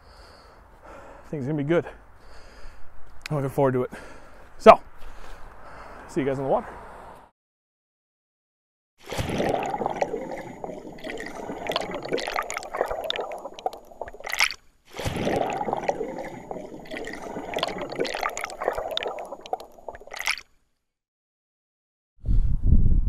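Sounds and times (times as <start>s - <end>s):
water gurgling and splashing: 9.0s - 20.5s.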